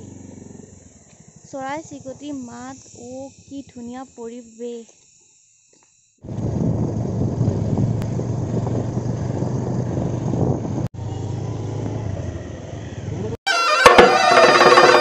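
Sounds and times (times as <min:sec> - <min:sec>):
vehicle driving on paved road: 0:00.0 - 0:03.1, 0:06.2 - 0:13.4.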